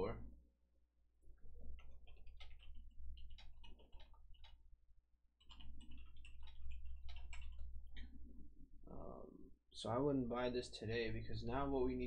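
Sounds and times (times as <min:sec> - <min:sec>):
keyboard typing: 0:01.5 - 0:04.6, 0:05.4 - 0:08.2.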